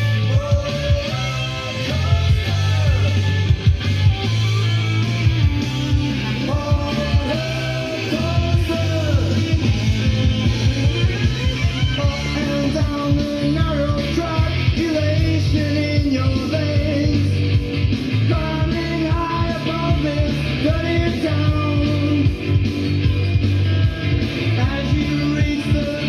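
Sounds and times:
song with singing over a beat: 0.0s - 26.0s.

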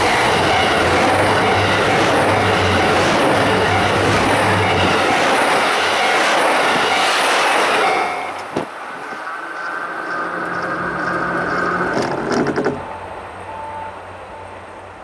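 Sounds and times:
train wheels rushing on rails: 0.0s - 15.0s
diesel engine drone: 8.9s - 15.0s.

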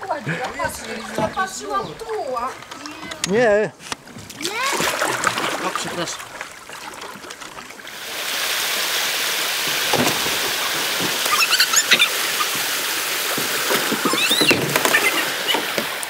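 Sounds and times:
water rushing over a weir: 4.1s - 16.0s.

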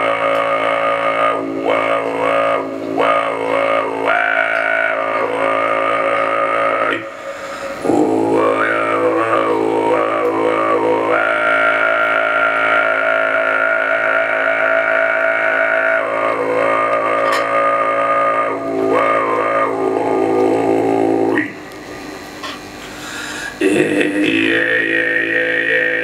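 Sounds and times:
deep throat singing drone: 0.0s - 26.0s.

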